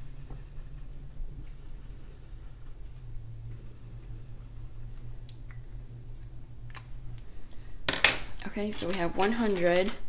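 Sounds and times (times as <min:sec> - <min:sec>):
marker scratching on paper: 0:01.5 - 0:02.8, 0:03.6 - 0:05.0.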